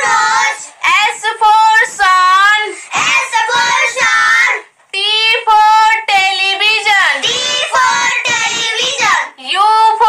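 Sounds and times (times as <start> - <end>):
child chanting in sing-song: 0.0 - 2.0, 2.6 - 4.7, 7.2 - 9.4.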